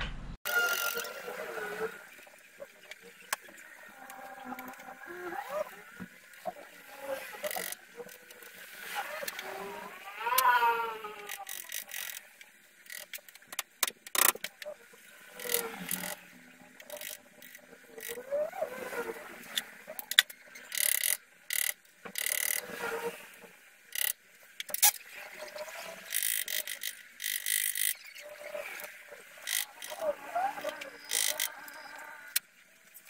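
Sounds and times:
ratchet clicking: 7.5s - 7.8s, 11.3s - 14.6s, 15.4s - 16.2s, 16.8s - 18.2s, 20.0s - 22.6s, 23.9s - 25.0s, 26.1s - 28.1s, 29.4s - 30.0s, 30.6s - 31.6s.

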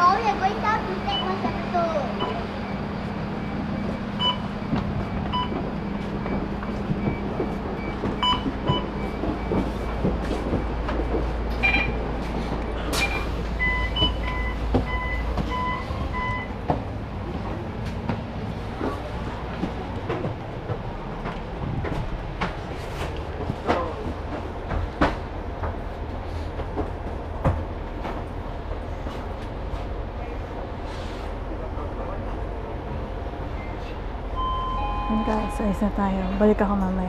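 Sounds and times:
bus engine idling: 0.0s - 37.0s
short electronic beeps: 1.0s - 2.8s, 33.6s - 35.7s.

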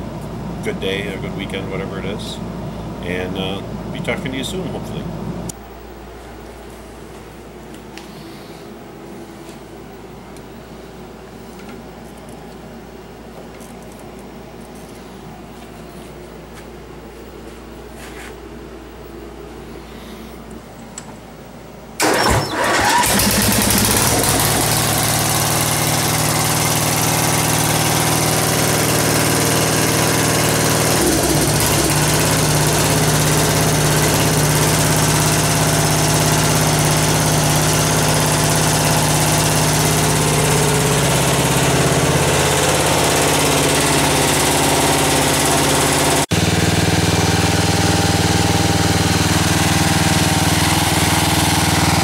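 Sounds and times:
garden tractor engine running: 22.0s - 52.0s.

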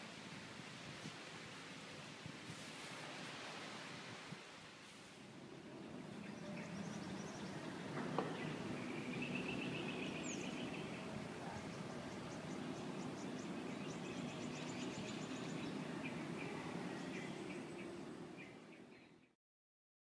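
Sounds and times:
small birds chirping: 5.7s - 19.4s.

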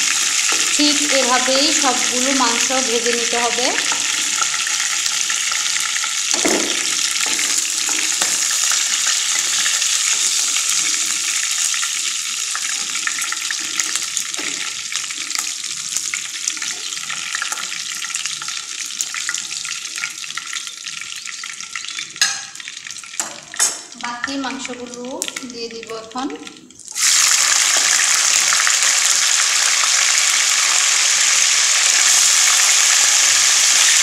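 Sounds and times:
chicken frying in oil: 0.0s - 34.0s.

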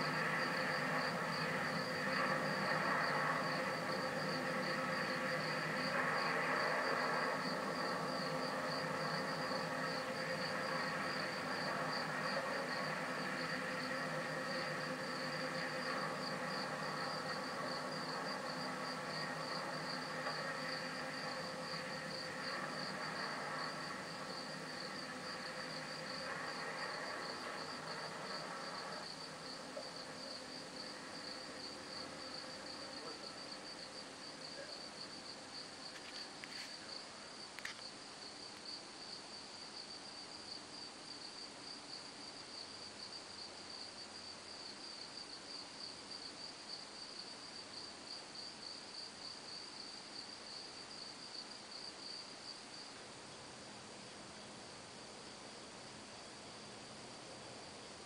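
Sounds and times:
distant freight train hum: 0.0s - 37.3s
crickets trilling: 0.0s - 58.0s.

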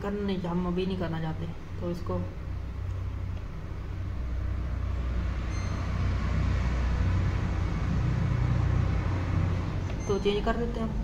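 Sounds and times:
washing machine churning: 2.4s - 11.0s.

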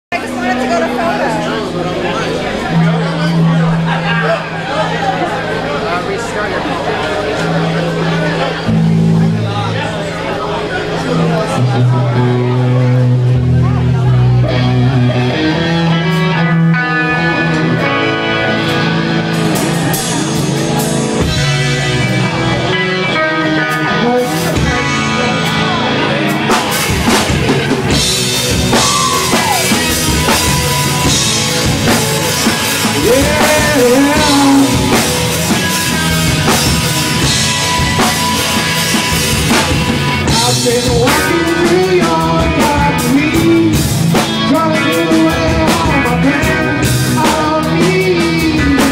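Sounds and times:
distorted electric guitars: 0.1s - 48.9s
drum kit: 11.6s - 48.9s
man singing: 31.8s - 37.3s, 40.1s - 48.9s.

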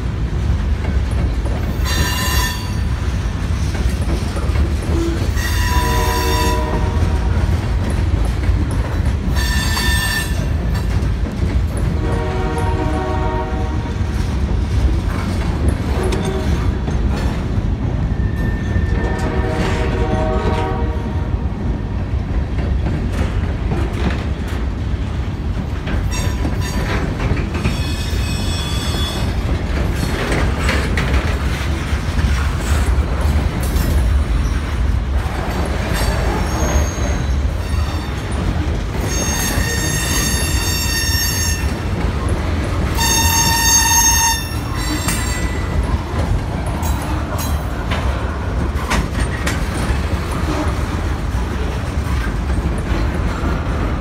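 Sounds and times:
freight train wheels rumbling: 0.0s - 54.0s
high-pitched wheel squeal: 39.0s - 41.7s, 43.0s - 45.6s.

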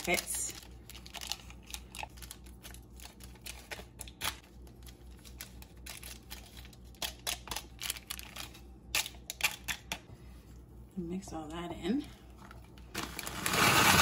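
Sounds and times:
seasoning packets clicking and crinkling: 0.0s - 9.9s.

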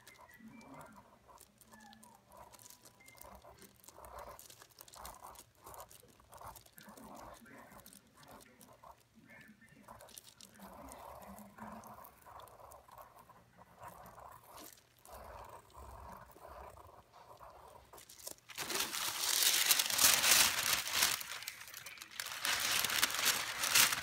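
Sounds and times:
paper crinkling and rustling: 0.0s - 9.1s, 16.0s - 24.0s
pencil scratching on paper: 0.0s - 9.1s, 9.8s - 24.0s.

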